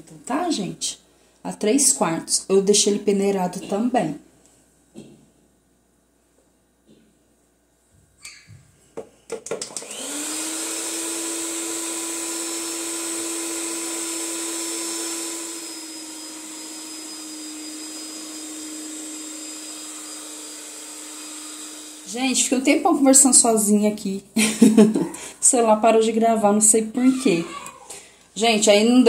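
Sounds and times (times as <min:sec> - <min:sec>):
stand mixer motor whirring: 0:09.6 - 0:22.1.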